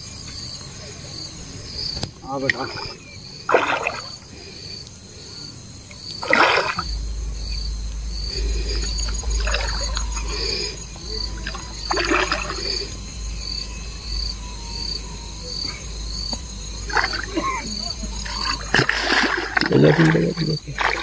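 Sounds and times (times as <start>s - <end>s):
insect chirping: 0.0s - 21.0s
fish splashing in water: 2.6s - 4.2s, 6.0s - 7.0s, 11.4s - 12.8s, 16.9s - 17.4s, 18.2s - 21.0s
low rumble: 5.7s - 21.0s.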